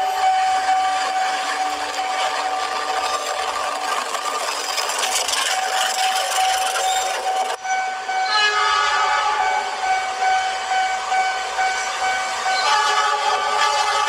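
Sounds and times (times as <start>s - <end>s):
toy train motor whine: 0.1s - 7.6s
wheels rubbing on dirt: 0.3s - 7.6s.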